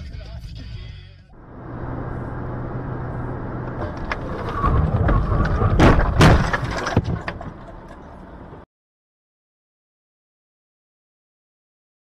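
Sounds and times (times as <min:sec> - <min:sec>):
road noise: 0:01.2 - 0:08.7
car collision with cracks and bangs: 0:01.6 - 0:08.6
rattling: 0:01.6 - 0:08.6.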